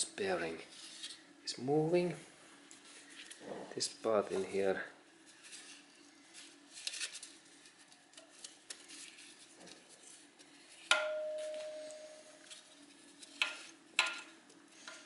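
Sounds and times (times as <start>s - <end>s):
sharp ringing metal clink: 11.0s - 12.2s.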